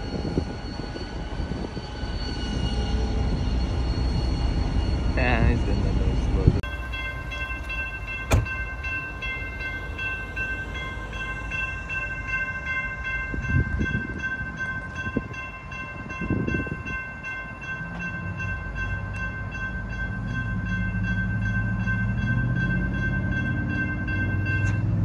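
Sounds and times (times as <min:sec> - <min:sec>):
crossing warning bell clanging: 0:00.0 - 0:25.0.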